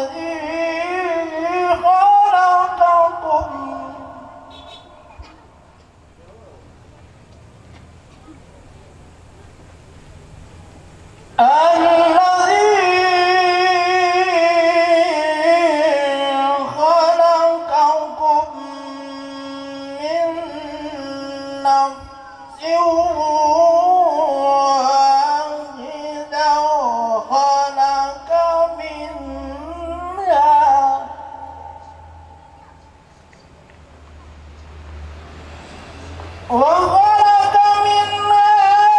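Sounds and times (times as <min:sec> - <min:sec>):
man reciting melodically over pa: 0:00.0 - 0:06.8, 0:11.0 - 0:32.6, 0:36.5 - 0:38.9.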